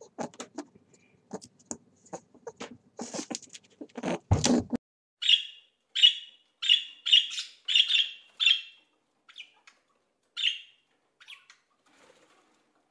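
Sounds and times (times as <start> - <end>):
parakeet squawking: 5.2 - 9.6, 10.4 - 11.5.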